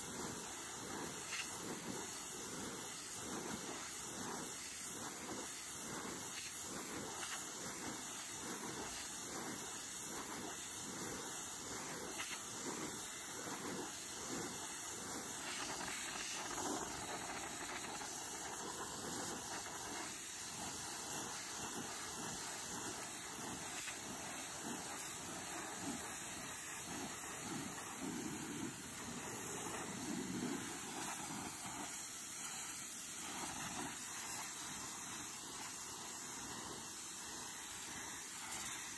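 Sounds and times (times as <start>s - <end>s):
pressure washer spraying wood: 0.0s - 38.9s.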